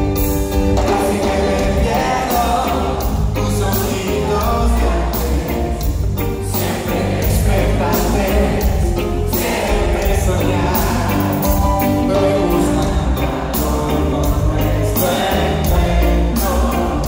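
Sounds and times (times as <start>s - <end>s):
drums: 0.0s - 17.0s
electric guitar: 0.0s - 17.0s
heavy bass line: 0.0s - 17.0s
man singing: 0.6s - 17.0s.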